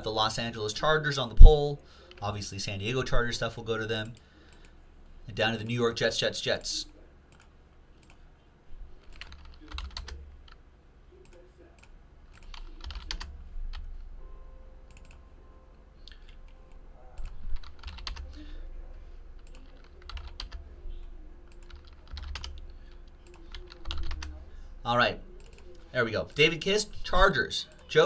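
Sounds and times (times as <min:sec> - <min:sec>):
computer mouse clicks: 0:07.3 - 0:08.2, 0:14.9 - 0:15.2, 0:19.4 - 0:20.6.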